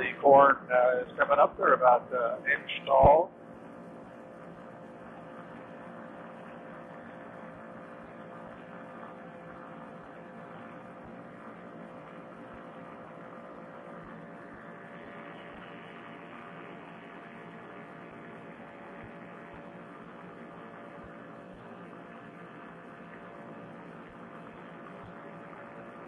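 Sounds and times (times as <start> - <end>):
microphone hiss: 0.0 - 3.7
muffled engine drone: 0.0 - 26.0.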